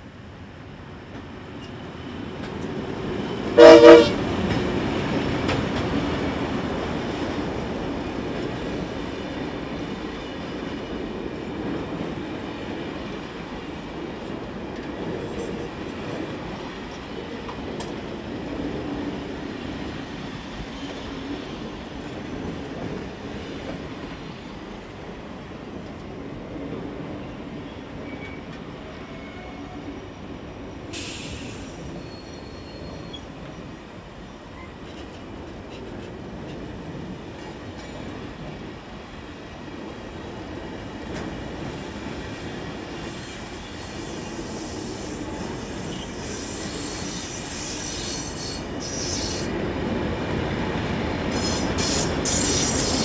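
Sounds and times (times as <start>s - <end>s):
train rumbling past: 0.0s - 53.0s
locomotive horn blast: 3.6s - 4.2s.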